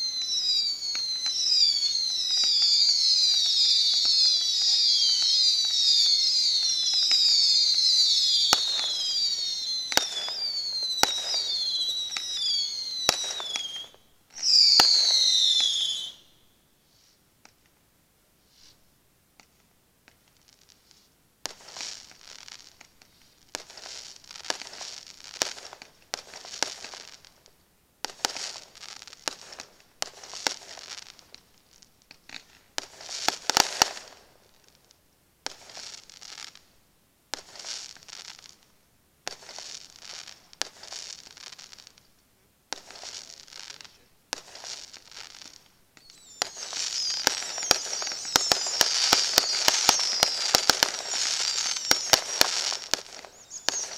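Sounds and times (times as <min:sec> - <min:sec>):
firework bangs: 0:00.0 - 0:16.2, 0:32.1 - 0:34.5, 0:35.4 - 0:36.6, 0:37.3 - 0:38.6, 0:39.2 - 0:42.0, 0:42.7 - 0:53.9
firework crackling: 0:00.0 - 0:16.3, 0:19.4 - 0:53.9.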